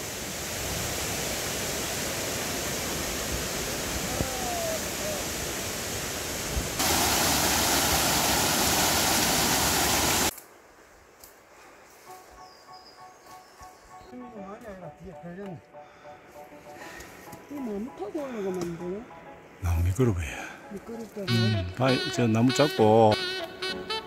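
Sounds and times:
mountain stream rushing over rocks: 0.0s - 10.3s.

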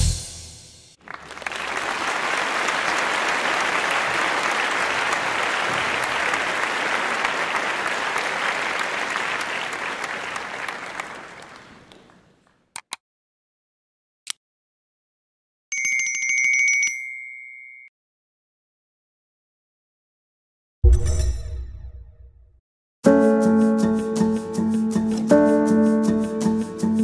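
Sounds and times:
crowd applauding: 1.0s - 12.5s.

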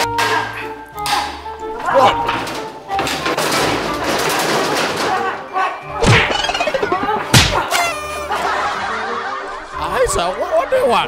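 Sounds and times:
background music: 0.0s - 11.0s
heavy whacks: 6.0s - 6.5s, 7.2s - 7.8s
bamboo pole hits: 7.0s - 7.9s.

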